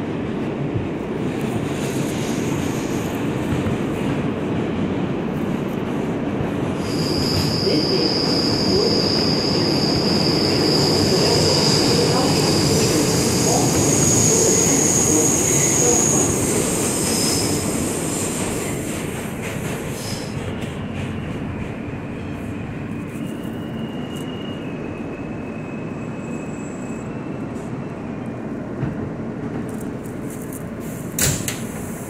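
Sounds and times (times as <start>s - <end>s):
subway train rumble: 0.0s - 32.0s
high wheel squeal: 6.8s - 17.6s, 22.9s - 27.7s.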